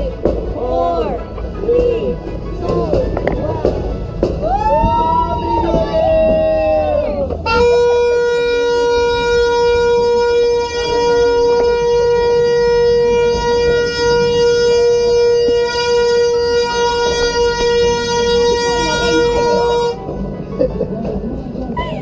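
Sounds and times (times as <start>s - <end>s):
horn blowing steady high note: 5.1s - 20.2s.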